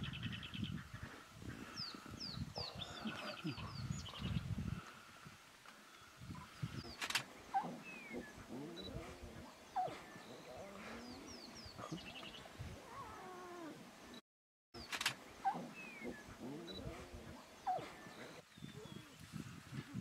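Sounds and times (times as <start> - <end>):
small birds chirping: 0.0 - 5.0, 5.8 - 14.2, 14.8 - 20.0
lion cub mewing: 7.5 - 12.2, 15.4 - 18.4.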